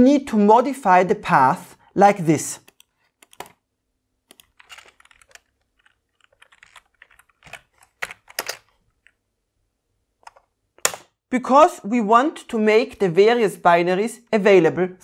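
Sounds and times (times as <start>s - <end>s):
keyboard typing clicks: 2.6s - 3.6s, 4.3s - 9.2s.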